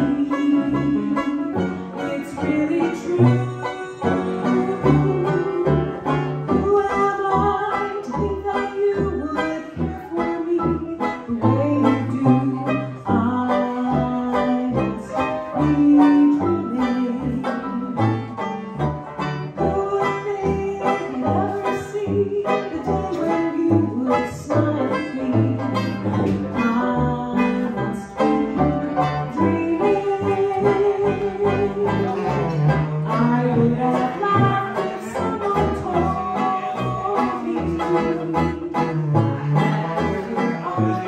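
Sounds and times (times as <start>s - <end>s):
trumpet: 0.0s - 2.6s
woman singing: 0.0s - 18.3s, 19.6s - 41.0s
saxophone: 0.0s - 18.4s
banjo strumming: 0.0s - 41.0s
piano: 0.0s - 41.0s.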